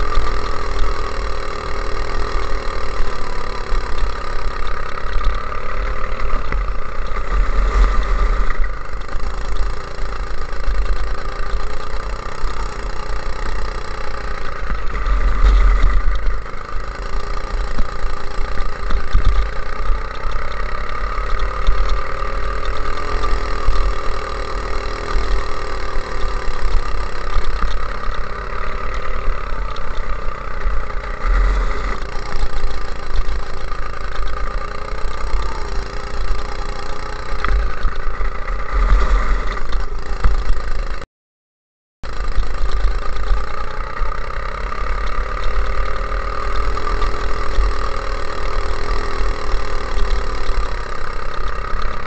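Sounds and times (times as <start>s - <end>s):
low rumble of wind: 0.0s - 36.5s, 37.2s - 41.0s
go-kart engine running: 0.0s - 41.0s, 42.0s - 52.0s.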